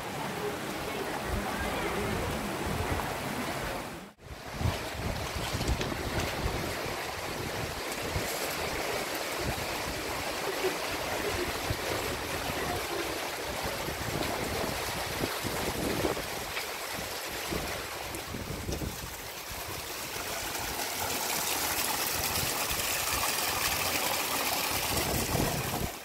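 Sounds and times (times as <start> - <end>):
stream running over gravel: 0.0 - 26.0
wind buffeting microphone: 4.2 - 10.3, 11.2 - 19.8, 24.8 - 26.0
water trickling down rock: 14.1 - 26.0.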